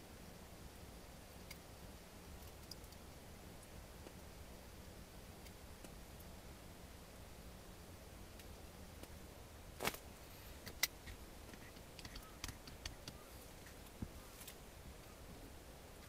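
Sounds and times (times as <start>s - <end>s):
small clicks and taps: 10.6s - 14.1s.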